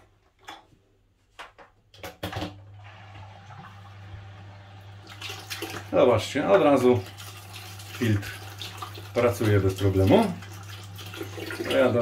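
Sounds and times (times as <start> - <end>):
pump humming: 2.7 - 12.0
water rushing through hoses: 2.8 - 12.0.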